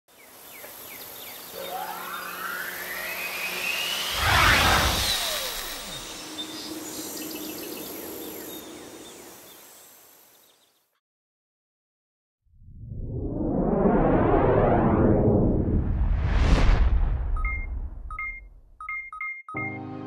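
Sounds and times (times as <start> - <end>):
falling sweep: 1.7 - 6.7, 12.6 - 17.9
rising whoosh: 1.7 - 8.4, 12.6 - 18.1.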